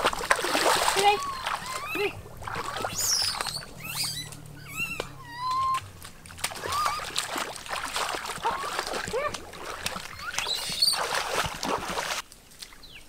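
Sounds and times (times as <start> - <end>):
feet splashing in shallow water: 0.0 - 13.0
puppy whimpering and yelping: 1.2 - 5.9, 6.6 - 7.2.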